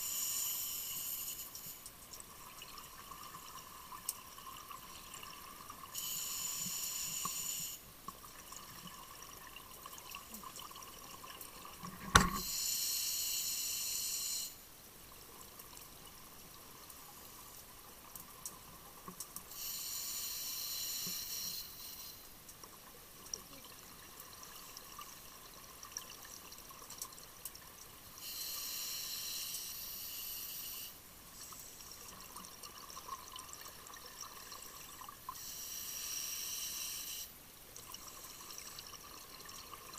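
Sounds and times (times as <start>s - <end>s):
steady regulator hiss: 0.0s - 1.9s, 5.9s - 7.9s, 11.8s - 14.6s, 19.5s - 22.3s, 28.1s - 32.1s, 35.3s - 37.4s.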